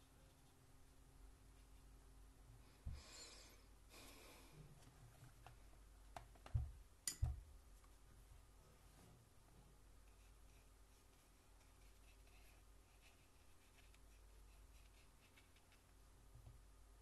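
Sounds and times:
soft knocks on a desk: 0:06.5 - 0:07.4.

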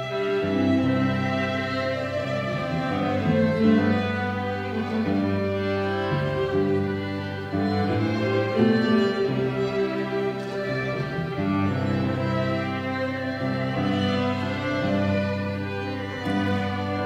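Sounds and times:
string ensemble playing: 0:00.0 - 0:17.0.

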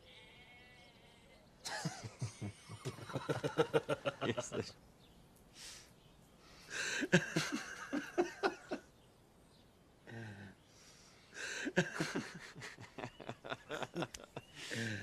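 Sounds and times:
man chuckling: 0:01.6 - 0:04.8, 0:06.7 - 0:08.9, 0:11.4 - 0:15.0.

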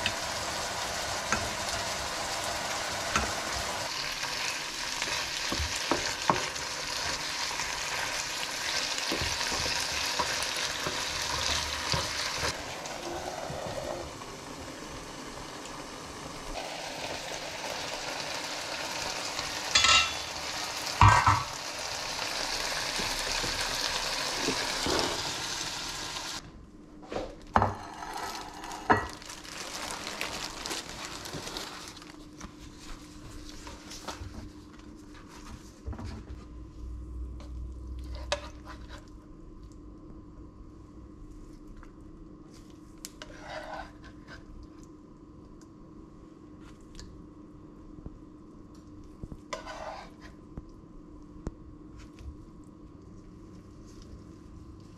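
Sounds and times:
food sizzling in oil: 0:00.0 - 0:26.4.

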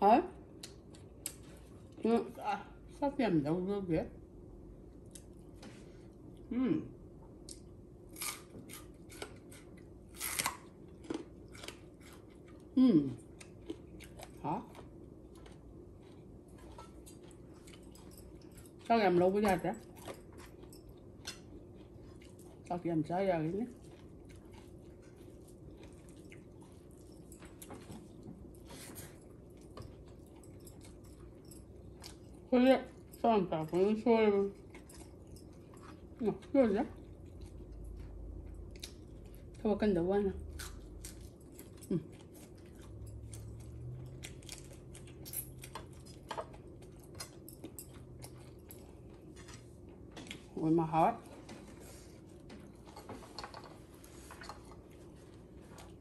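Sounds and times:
low steady hum: 0:00.0 - 0:56.0
person chewing: 0:07.4 - 0:18.9, 0:19.8 - 0:22.7, 0:23.7 - 0:32.5, 0:34.6 - 0:39.6, 0:40.4 - 0:50.5.

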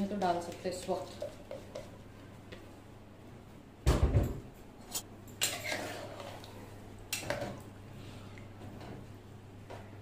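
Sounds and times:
spoon scraping a pot: 0:04.9 - 0:06.5.

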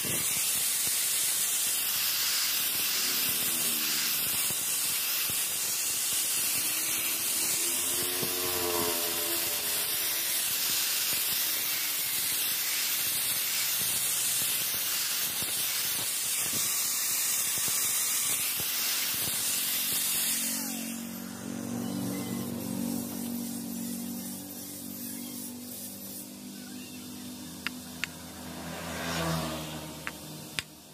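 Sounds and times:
angle grinder grinding steel: 0:00.0 - 0:30.9
low hum: 0:06.6 - 0:10.3.

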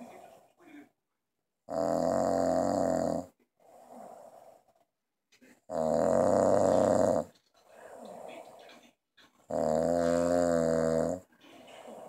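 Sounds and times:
quiet breaths: 0:00.0 - 0:01.0, 0:02.1 - 0:12.0
man snoring heavily: 0:01.7 - 0:04.1, 0:05.7 - 0:07.3, 0:09.5 - 0:11.2.

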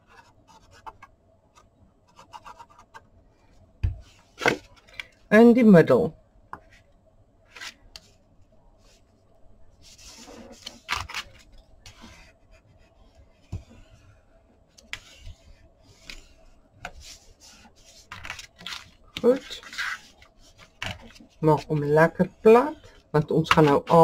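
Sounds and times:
cardstock rustling and scraping: 0:09.8 - 0:14.0, 0:14.8 - 0:21.9.

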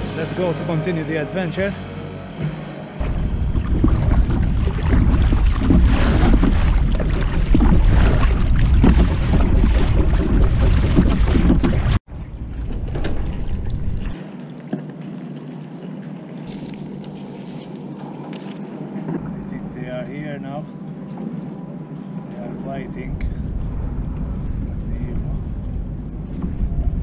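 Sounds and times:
water lapping: 0:02.7 - 0:27.0
wind buffeting microphone: 0:03.0 - 0:14.2, 0:21.2 - 0:27.0
paddle splashing water: 0:03.0 - 0:19.4.

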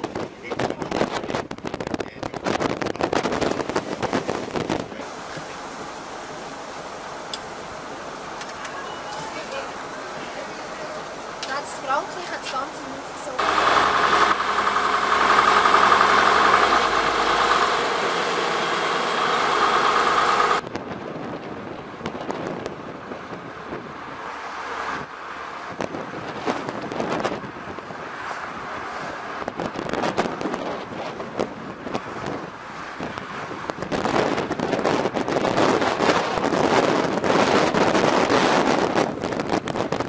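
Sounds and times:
wind buffeting microphone: 0:00.0 - 0:08.5, 0:09.3 - 0:40.0
road and traffic noise: 0:00.0 - 0:40.0
steady pitched hum: 0:12.8 - 0:20.6.

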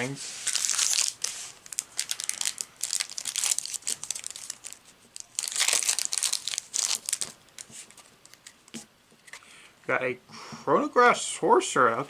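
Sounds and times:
foil wrapper tearing and crinkling: 0:00.4 - 0:08.5.

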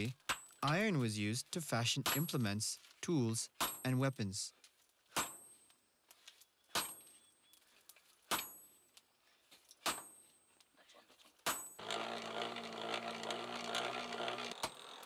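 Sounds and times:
forge blower whirring: 0:11.8 - 0:15.0.

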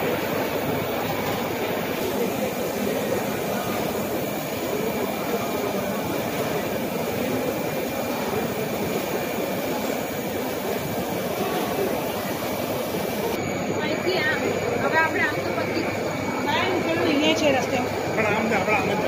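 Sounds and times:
packaging machines running: 0:00.0 - 0:13.4
hall background noise: 0:00.0 - 0:19.0
faint high whine: 0:01.6 - 0:16.8.

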